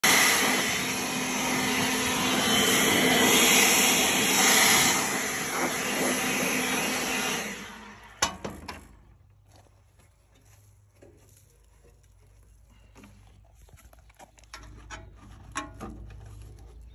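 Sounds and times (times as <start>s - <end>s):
handheld blower running: 0.0s - 8.9s.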